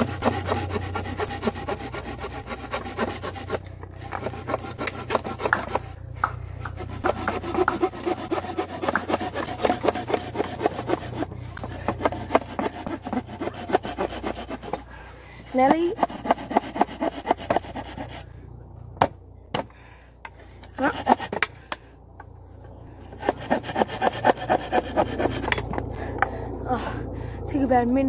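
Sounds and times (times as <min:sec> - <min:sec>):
folding saw cutting wood: 0:00.0 - 0:18.3, 0:20.7 - 0:21.7, 0:22.9 - 0:25.9.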